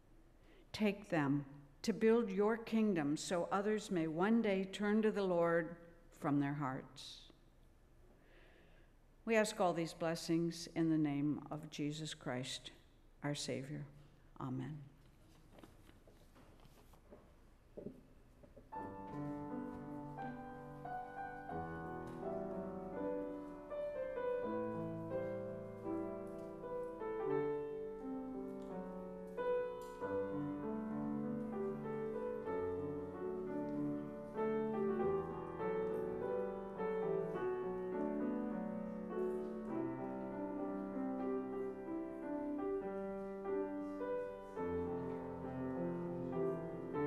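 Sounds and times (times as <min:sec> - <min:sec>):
grand piano playing: 0:18.7 - 0:47.0.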